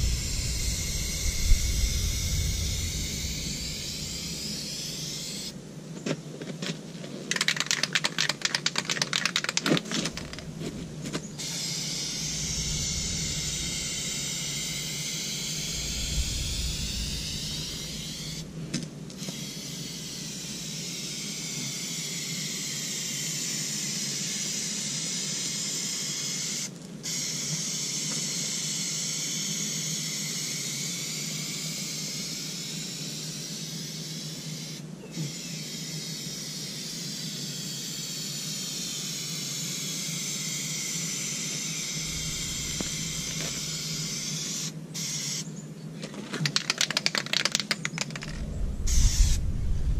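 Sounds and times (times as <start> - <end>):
spray paint hissing: 0.0 - 5.5, 7.3 - 18.5, 19.2 - 45.4
spray can rattling: 7.2 - 10.4, 46.3 - 48.4.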